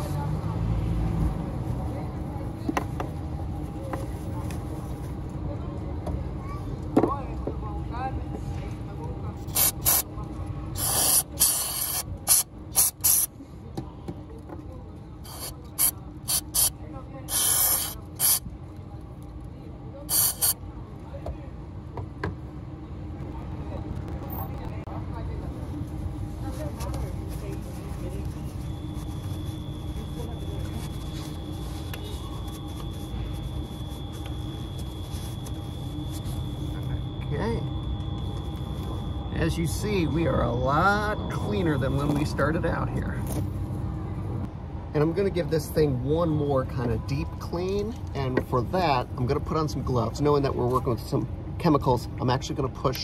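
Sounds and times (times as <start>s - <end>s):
faint high hum: 1.7s - 45.5s
aerosol spray squirts: 9.5s - 10.0s, 10.8s - 13.3s, 15.3s - 16.7s, 17.3s - 18.4s, 20.1s - 20.6s.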